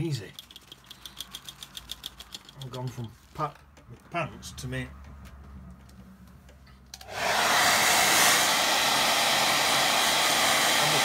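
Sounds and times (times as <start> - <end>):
hair dryer blowing: 7.0 - 11.0.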